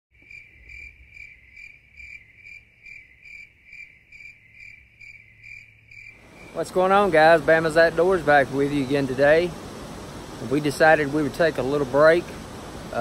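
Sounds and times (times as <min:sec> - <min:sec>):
insect chirping: 0:00.2 - 0:08.2.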